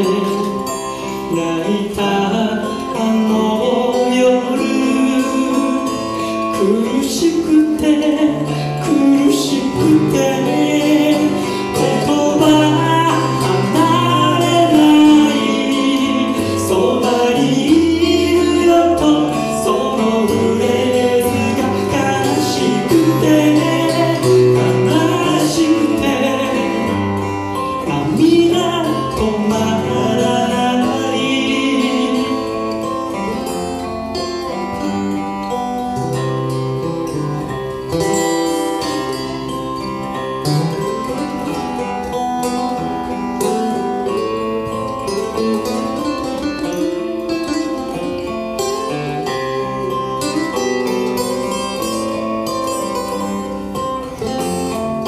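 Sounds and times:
person singing: 0.0 - 33.8
acoustic guitars playing: 0.0 - 55.0.

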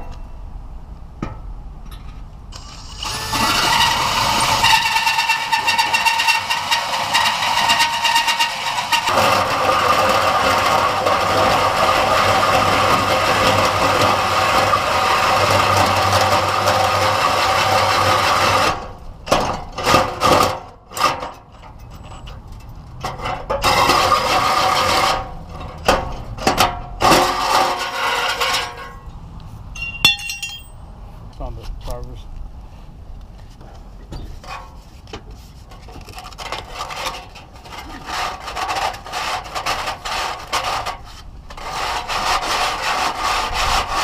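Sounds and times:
hole saw grinding into metal: 2.5 - 22.3, 23.0 - 29.0, 36.0 - 44.0.

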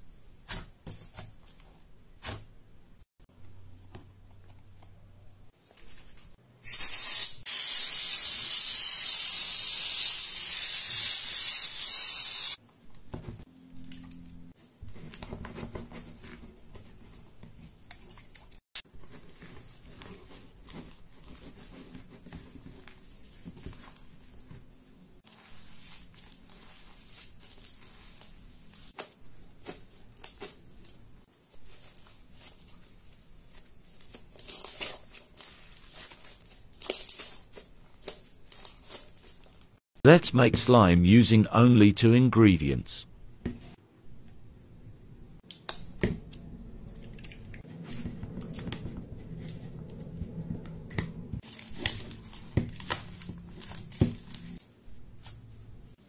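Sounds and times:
aerosol can spraying: 6.6 - 12.6.

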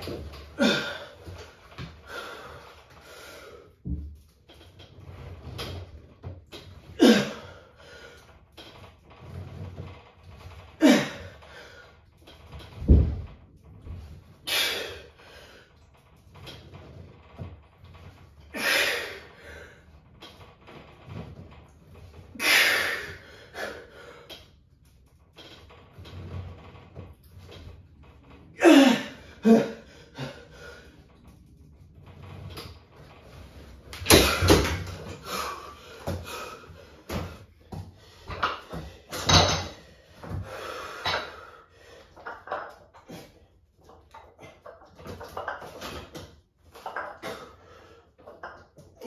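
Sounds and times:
weights knocking and clanking: 8.3 - 14.5, 31.1 - 41.5, 42.1 - 49.0.

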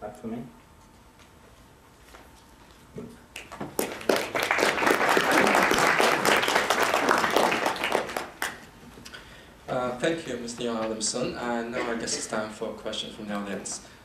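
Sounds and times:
audience applauding: 3.4 - 8.7.

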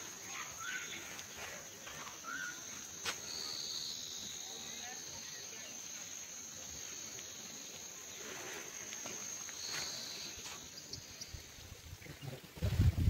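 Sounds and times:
insects chirring: 0.0 - 13.0
wind gusts buffeting: 11.7 - 13.0.

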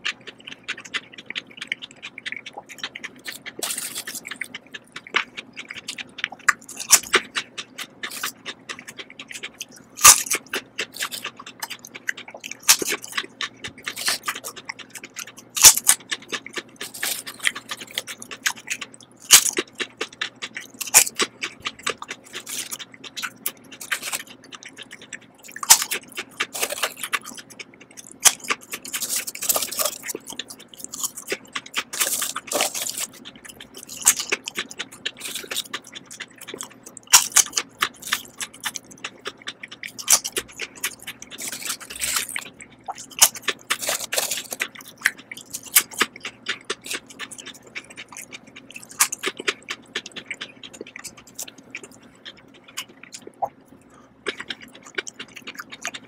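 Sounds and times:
potato chips crunching in mouth: 0.0 - 56.0.

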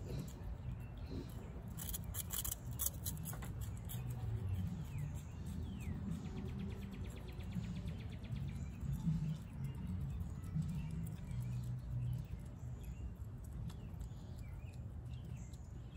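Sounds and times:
opossum chewing food: 0.0 - 15.9.

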